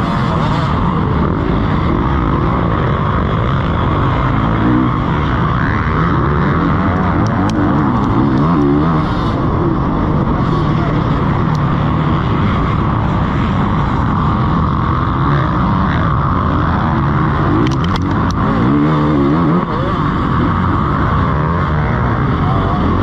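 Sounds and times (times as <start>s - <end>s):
motocross bike engine revving: 0.0s - 23.0s
sharp ticks: 17.5s - 18.6s.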